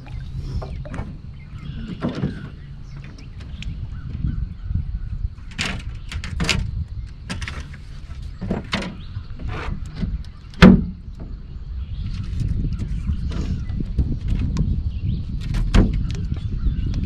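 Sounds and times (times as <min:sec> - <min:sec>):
low steady rumble: 0:00.0 - 0:08.4
knocks and clatters on boat deck: 0:00.6 - 0:04.4, 0:05.4 - 0:14.8, 0:15.4 - 0:17.0.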